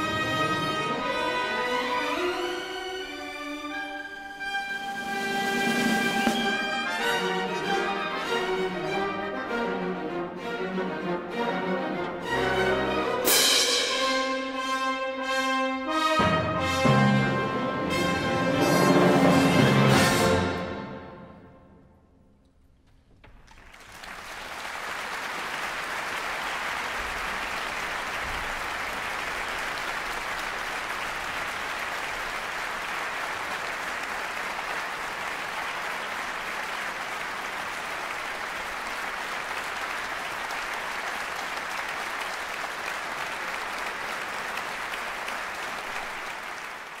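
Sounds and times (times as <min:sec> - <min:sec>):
audience applauding: 0:04.9 - 0:08.8, 0:23.3 - 0:47.0.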